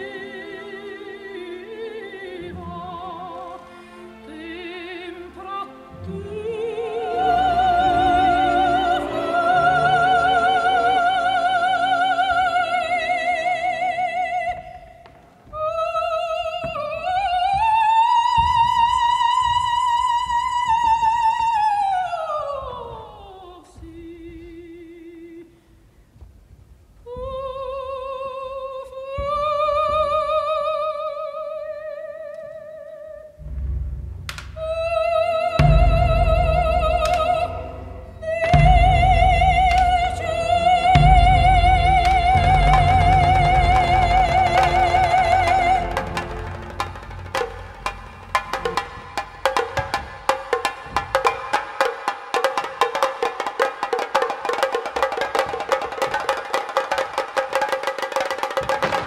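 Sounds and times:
operatic singing: 0:00.0 - 0:25.6, 0:34.3 - 0:52.0
low rumble: 0:33.4 - 0:49.4.

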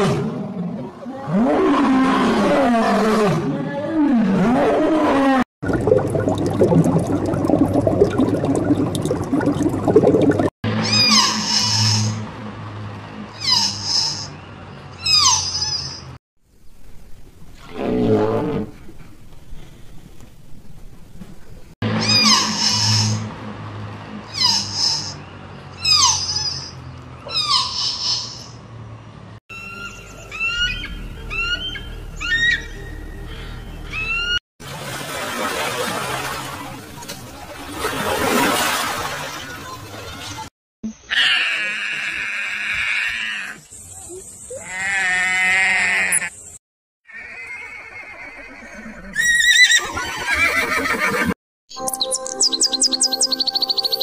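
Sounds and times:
lion roaring: 0:00.0 - 0:05.4
deer fawn bleating: 0:44.6 - 0:46.3.

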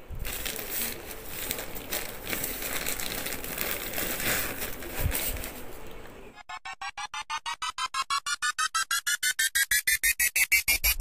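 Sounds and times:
packing wrap crinkling: 0:00.0 - 0:06.0.

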